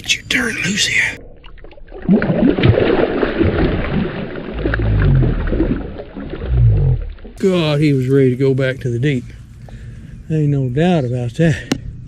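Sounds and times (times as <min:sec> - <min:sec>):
low rumble: 0:01.2 - 0:10.3
fish splashing in water: 0:01.3 - 0:07.5.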